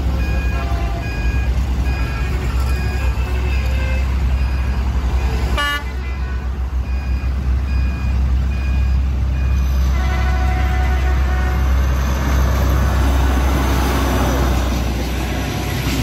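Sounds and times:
diesel locomotive engine rumbling: 0:00.0 - 0:16.0
level crossing warning beeps: 0:00.1 - 0:03.3, 0:04.3 - 0:05.6, 0:06.8 - 0:09.8
train horn toot: 0:05.5 - 0:06.5, 0:09.8 - 0:12.1.

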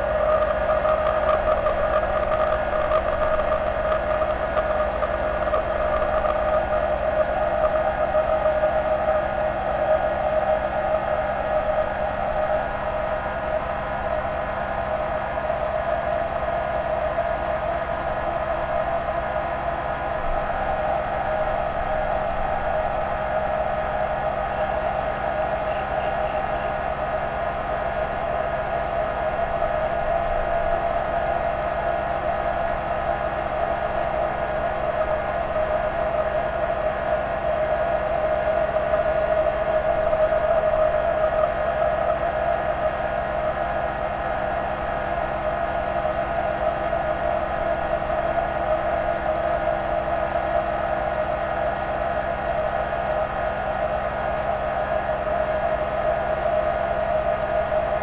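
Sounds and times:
low hum: 0:00.0 - 0:09.2
lathe mechanical whine: 0:00.0 - 0:58.0.

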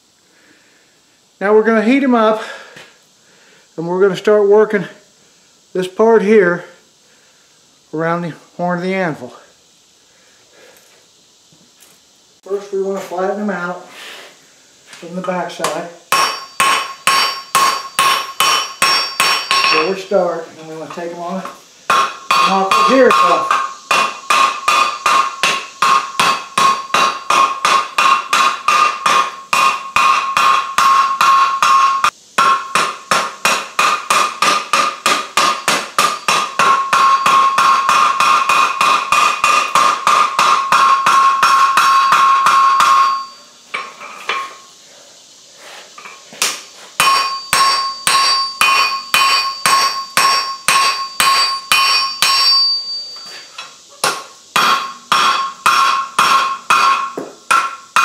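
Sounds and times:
hammer ringing on anvil: 0:16.1 - 0:20.1, 0:21.9 - 0:44.6, 0:47.0 - 0:53.3, 0:54.0 - 0:58.0.

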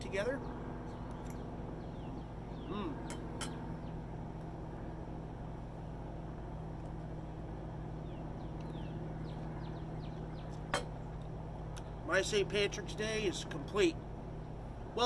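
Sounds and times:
low mechanical hum: 0:00.0 - 0:15.0
faint bird chirps: 0:00.2 - 0:04.7, 0:07.8 - 0:11.2.

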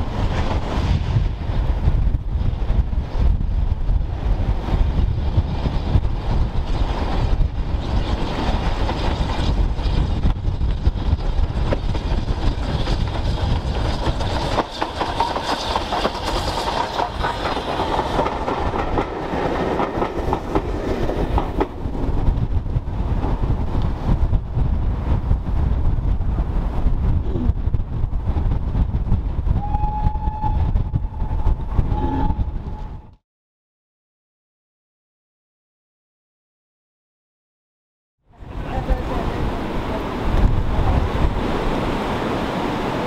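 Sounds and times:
steam locomotive passing: 0:00.0 - 0:25.7
wind rumble on microphone: 0:00.0 - 0:33.2, 0:38.3 - 0:43.0
wheels clattering on rail joints: 0:06.6 - 0:22.4.

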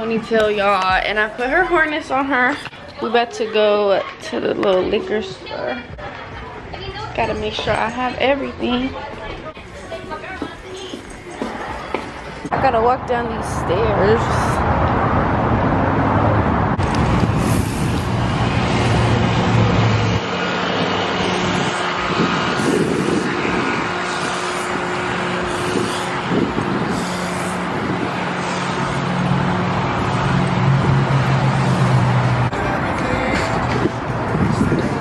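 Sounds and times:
road traffic noise: 0:00.0 - 0:35.0
low engine drone: 0:12.5 - 0:35.0.

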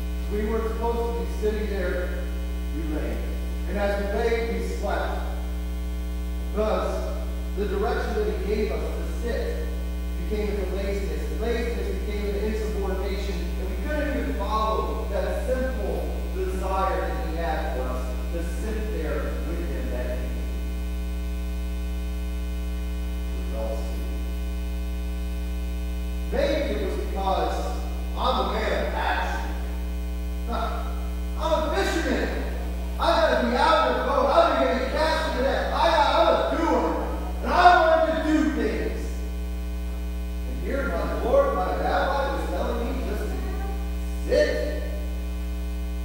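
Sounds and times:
loud electrical mains hum: 0:00.0 - 0:46.0
man talking: 0:00.3 - 0:05.4, 0:06.5 - 0:20.4, 0:23.4 - 0:24.1, 0:26.3 - 0:29.8, 0:30.5 - 0:39.2, 0:40.5 - 0:45.0.

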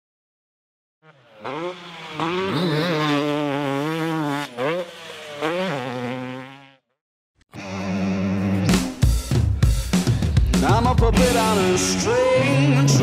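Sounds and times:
dirt bike engine revving: 0:01.0 - 0:06.9, 0:10.5 - 0:13.0.

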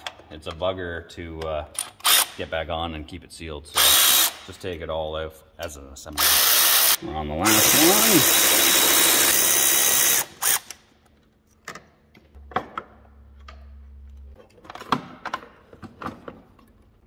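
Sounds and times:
cordless ratchet spinning: 0:06.2 - 0:10.7.

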